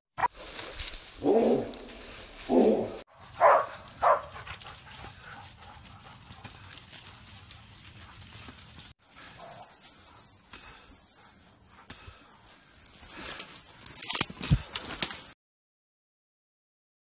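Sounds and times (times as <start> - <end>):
dogs barking: 3.2 - 8.5, 9.1 - 11.9.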